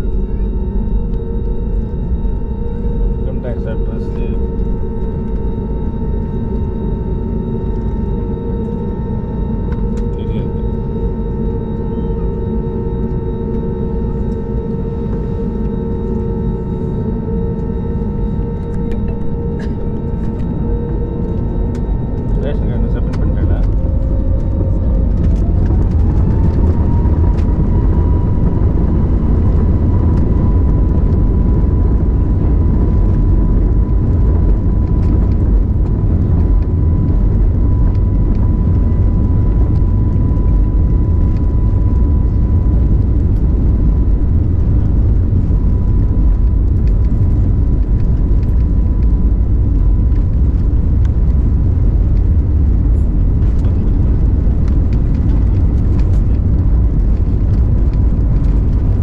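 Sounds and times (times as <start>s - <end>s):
jet engine whine: 0.0s - 59.0s
rumble of engines and wheels: 0.0s - 59.0s.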